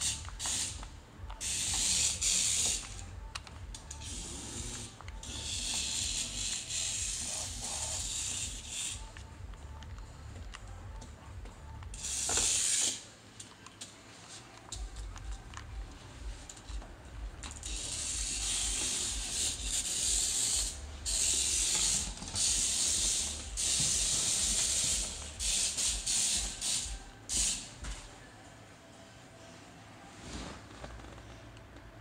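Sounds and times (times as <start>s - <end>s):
toy car motor whirring: 0.0s - 0.8s, 1.4s - 3.1s, 3.7s - 9.3s, 11.9s - 13.1s, 17.4s - 27.7s.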